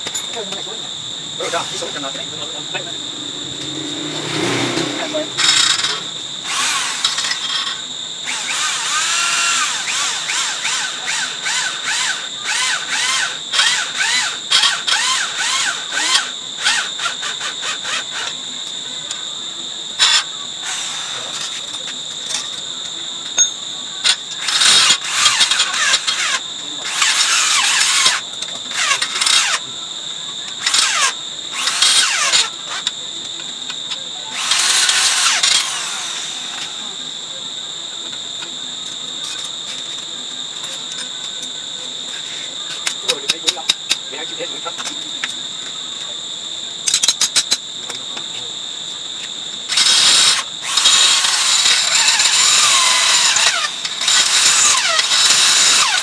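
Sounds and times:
insect chirring: 0.0s - 56.0s
electric drill whirring: 1.4s - 18.4s, 20.0s - 21.6s, 24.0s - 29.6s, 30.6s - 33.0s, 34.3s - 36.9s, 49.7s - 56.0s
drill bit squealing on metal: 5.2s - 18.4s, 23.4s - 29.7s, 30.6s - 32.9s, 34.3s - 36.8s, 49.7s - 56.0s.

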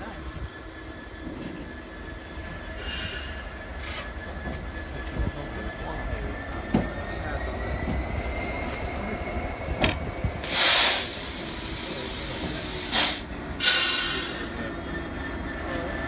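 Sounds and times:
diesel locomotive running: 0.0s - 16.0s
faint wheel squeal: 2.7s - 9.2s
loud hisses: 10.4s - 14.6s.

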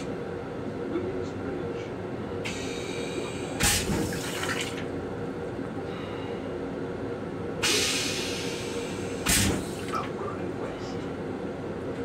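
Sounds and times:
toilet flush hiss: 3.6s - 4.7s, 7.6s - 9.8s
railcar rumble: 5.2s - 12.0s
sharp clunk: 9.2s - 9.7s.

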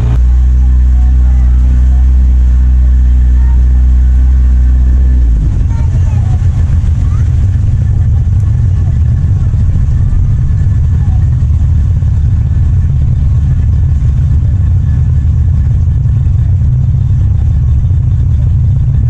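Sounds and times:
faint voices: 0.0s - 14.1s
moving vehicle rumble: 0.0s - 19.0s.

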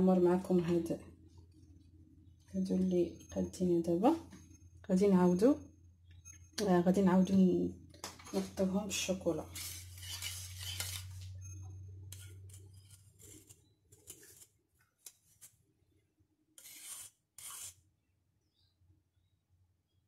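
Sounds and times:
spoon scraping saucepan: 9.4s - 11.2s, 12.0s - 14.5s, 16.6s - 17.8s.

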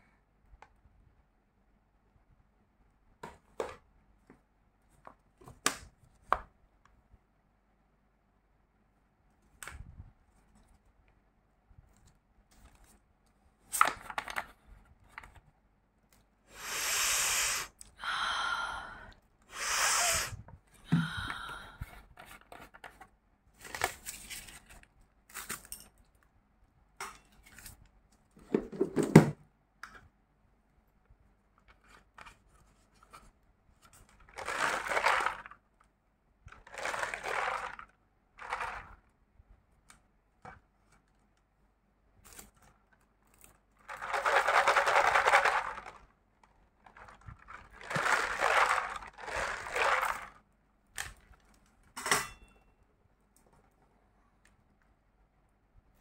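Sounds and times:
plastic bottles crackling and rustling: 13.7s - 15.4s, 33.9s - 35.7s, 36.5s - 39.1s, 42.2s - 51.9s.

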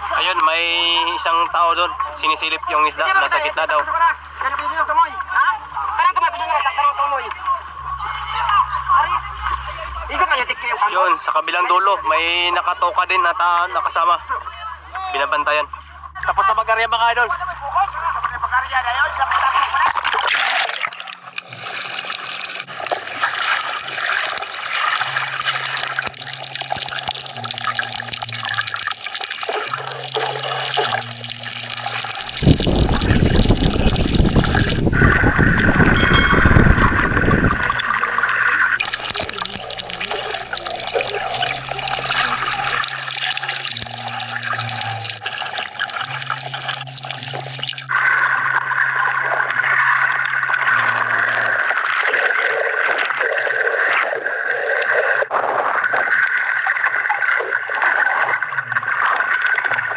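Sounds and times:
muffled underwater noise: 0.0s - 59.9s
rush of water: 20.3s - 59.9s
low hum: 29.7s - 49.1s.

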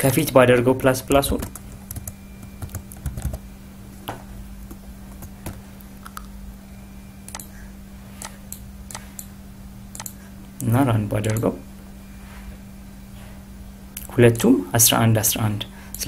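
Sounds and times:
steady low hum: 0.0s - 16.0s
keyboard and mouse clicking: 1.2s - 3.4s, 7.3s - 7.5s, 8.2s - 9.3s, 9.9s - 10.2s, 11.3s - 11.5s.

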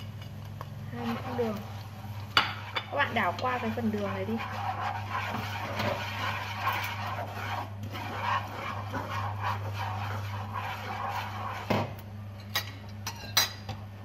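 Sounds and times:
steady low hum: 0.0s - 14.0s
wooden spatula scraping a pan: 0.9s - 12.0s.

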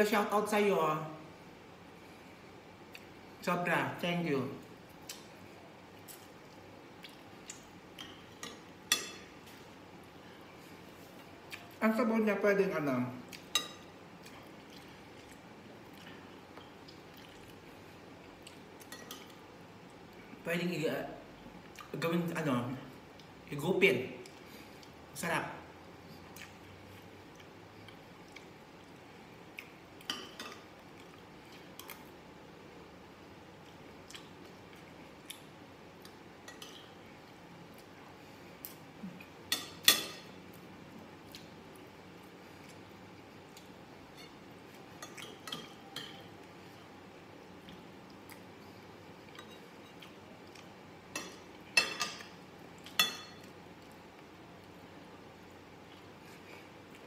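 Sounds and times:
soft chewing: 2.0s - 3.2s, 4.6s - 11.8s, 13.2s - 20.4s, 21.4s - 22.0s, 22.9s - 23.5s, 24.2s - 25.1s, 25.9s - 32.3s, 33.1s - 57.0s
cutlery clinking against glass bowl: 8.0s - 9.3s, 13.4s - 13.9s, 39.5s - 40.4s, 45.0s - 46.3s, 51.1s - 53.5s.

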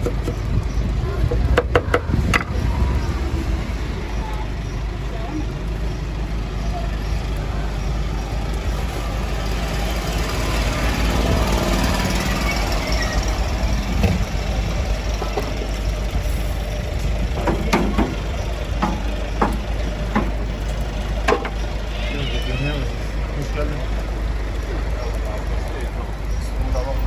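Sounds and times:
low engine-like rumble: 0.0s - 27.0s
sharp clicks and knocks: 17.3s - 21.6s.

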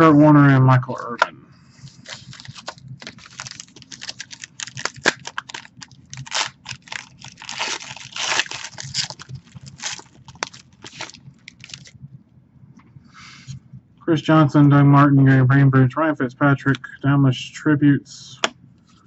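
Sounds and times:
card wrappers crinkling and tearing: 1.9s - 11.9s.

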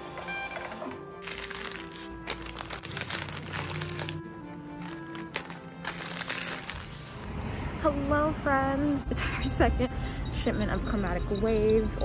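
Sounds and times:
background music with held notes: 0.0s - 12.0s
plastic mailers crinkling: 1.2s - 7.3s.

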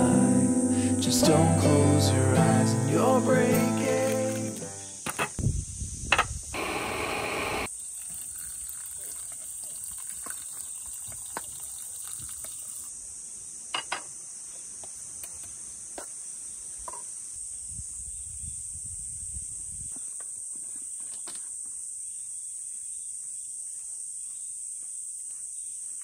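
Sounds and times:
insects chirring: 0.0s - 26.0s.

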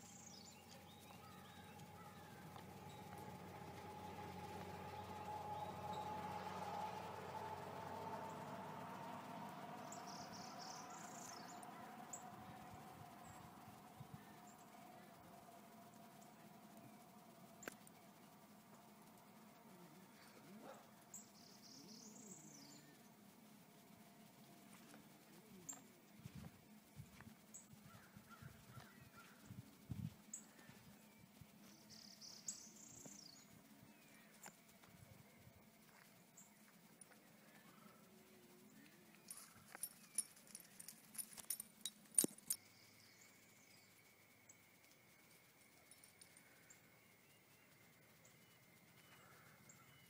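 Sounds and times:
faint bird calls: 0.0s - 6.0s, 48.3s - 50.0s
faint steady high tone: 0.0s - 50.0s.

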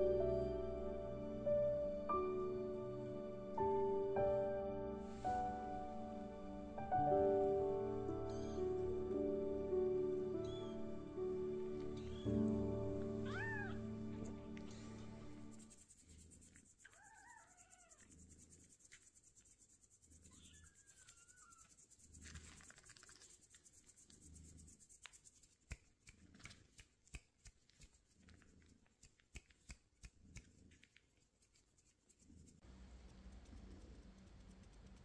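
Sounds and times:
kitten mewing: 13.2s - 13.8s, 16.8s - 18.1s
faint small clicks: 20.9s - 23.7s, 25.0s - 32.0s, 32.7s - 35.0s.

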